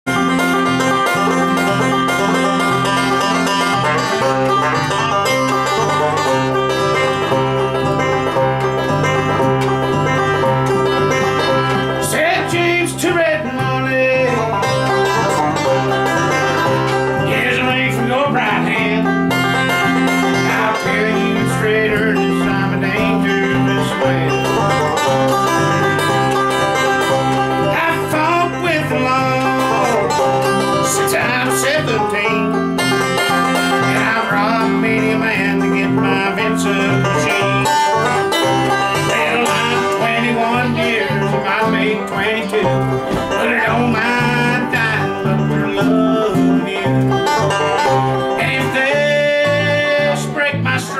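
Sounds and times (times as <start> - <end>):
banjo picking: 0.0 - 50.9
bass notes: 0.1 - 50.9
mandolin: 0.1 - 50.9
strummed acoustic guitar: 0.1 - 50.9
man singing: 11.8 - 15.3, 17.1 - 25.4, 27.6 - 50.9.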